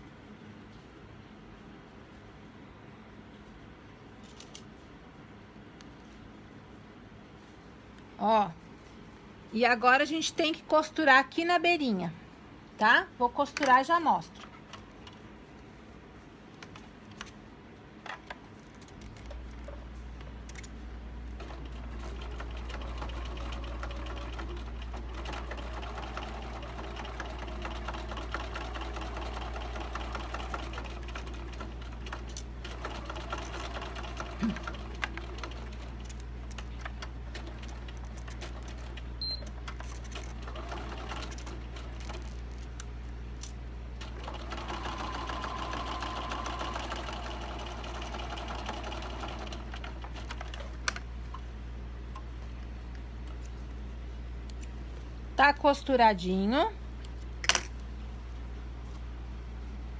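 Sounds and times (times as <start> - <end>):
sewing machine motor running: 21.4 - 42.4, 44.0 - 50.8.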